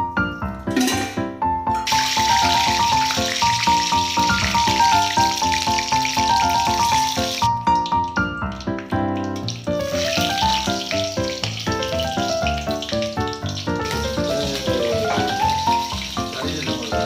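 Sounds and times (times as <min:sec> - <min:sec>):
background music: 0:00.0 - 0:17.0
leaves sizzling in hot oil: 0:01.8 - 0:08.0, 0:08.6 - 0:17.0.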